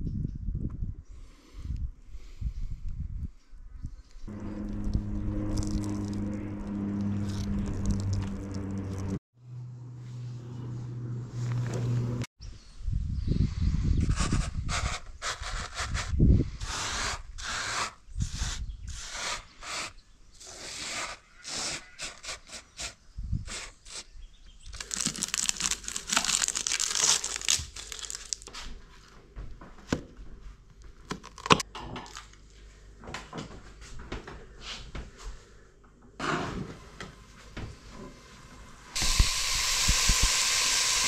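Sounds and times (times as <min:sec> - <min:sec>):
tearing and crinkling: 0:04.3 - 0:09.2, 0:24.7 - 0:28.6, 0:31.1 - 0:32.3.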